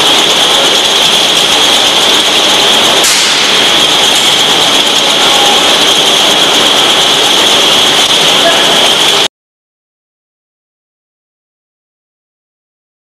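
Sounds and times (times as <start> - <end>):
machine whirring with high whine: 0.0 - 9.3.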